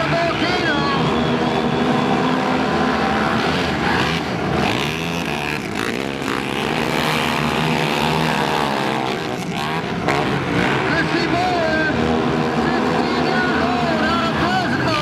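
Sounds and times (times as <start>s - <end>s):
quad engines racing: 0.0s - 15.0s.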